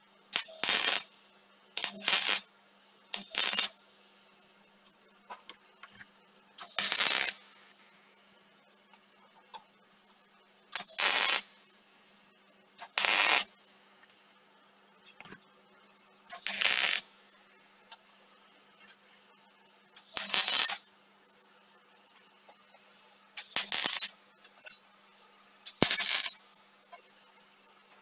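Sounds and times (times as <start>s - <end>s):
welding arc bursts: 0.3s - 1.1s, 1.8s - 2.5s, 3.1s - 3.8s, 6.6s - 7.5s, 10.8s - 11.5s, 12.8s - 13.5s, 16.3s - 17.1s, 20.0s - 20.8s, 23.4s - 24.2s, 25.7s - 26.5s.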